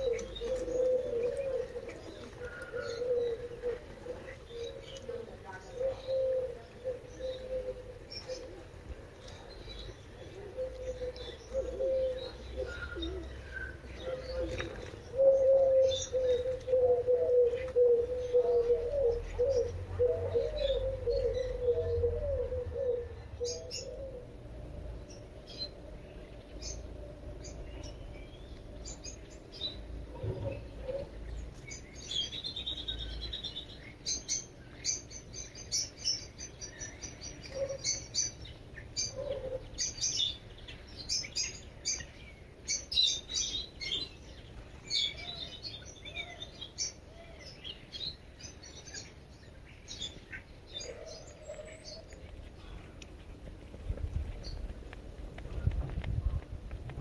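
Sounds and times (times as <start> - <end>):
pigeon cooing: 0.0 - 25.7, 28.8 - 31.5, 36.6 - 38.4, 39.0 - 40.4, 50.7 - 52.9
small birds chirping: 0.0 - 57.0.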